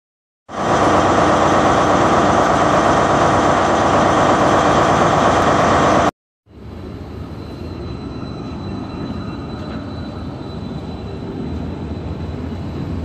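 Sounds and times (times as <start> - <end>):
loud steady rushing noise: 0.5 - 7.3.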